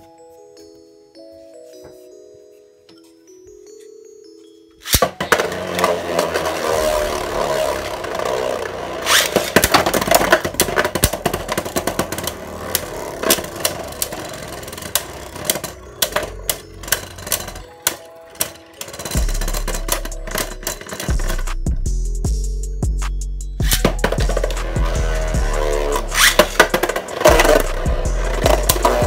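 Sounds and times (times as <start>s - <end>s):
spinning tops clacking together: 4.8s - 21.6s, 23.6s - 29.0s
spinning tops grinding in stadium: 5.2s - 21.6s, 23.6s - 29.0s.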